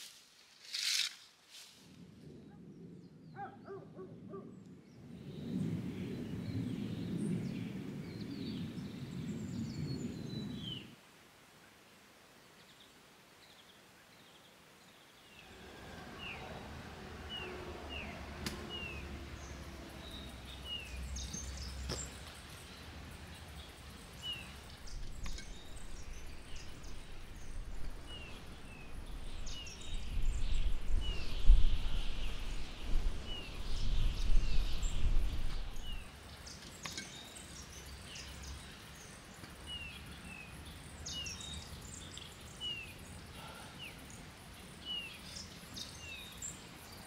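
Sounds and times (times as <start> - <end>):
low gusty rumble: 4.8 - 10.9, 22.9 - 36.1
small birds chirping: 12.6 - 47.0.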